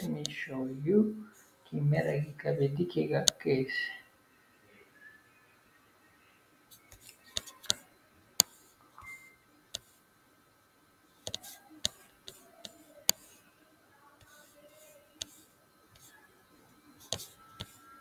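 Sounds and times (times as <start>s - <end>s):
computer mouse clicking: 6.8s - 7.8s, 11.2s - 13.3s, 17.0s - 17.8s.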